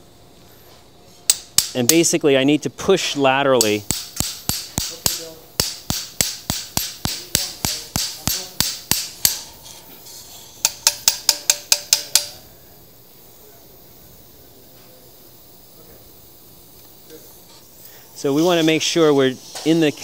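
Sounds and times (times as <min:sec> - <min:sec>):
mallet striking metal: 0:03.8 - 0:09.5, 0:10.6 - 0:12.4.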